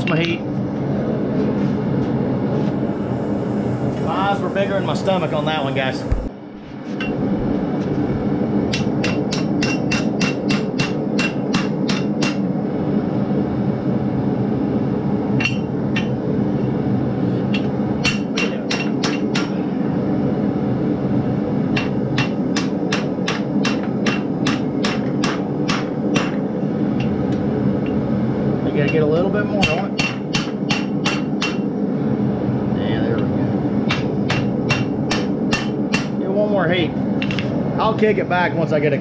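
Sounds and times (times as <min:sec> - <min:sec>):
gas forge burners: 0:00.0 - 0:39.0
hammer striking steel on anvil: 0:08.7 - 0:12.4, 0:15.4 - 0:16.2, 0:17.5 - 0:19.6, 0:21.7 - 0:26.4, 0:29.6 - 0:31.7, 0:33.9 - 0:36.2.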